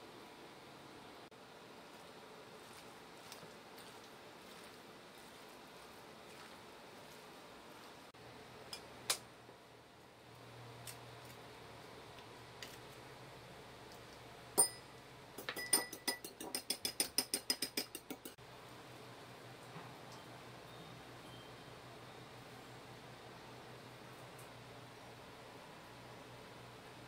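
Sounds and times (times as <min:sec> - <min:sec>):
fork beating egg in bowl: 0:15.6 - 0:18.4.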